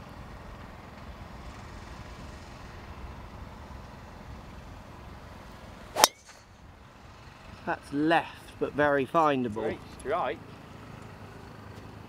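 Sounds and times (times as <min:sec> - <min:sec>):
golf ball struck by driver: 0:05.9 - 0:06.5.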